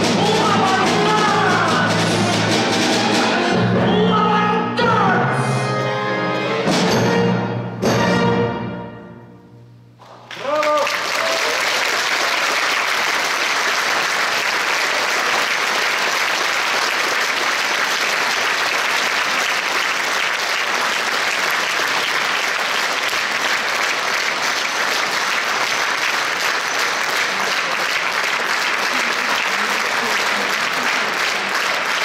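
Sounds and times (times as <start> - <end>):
audience applauding: 10.0 - 32.0.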